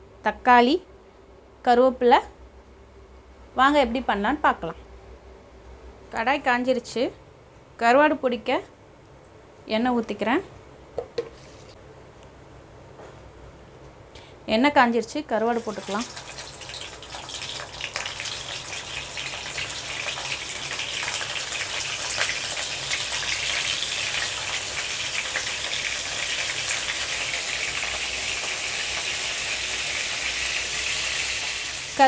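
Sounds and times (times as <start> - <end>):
fish frying in hot oil: 15.5 - 32.0.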